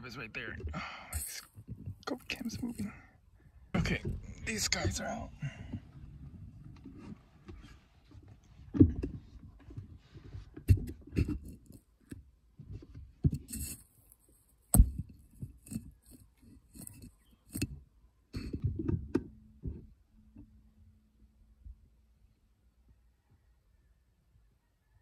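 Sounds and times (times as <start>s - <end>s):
camera handling bumps and rubbing: 5.7s - 17.8s.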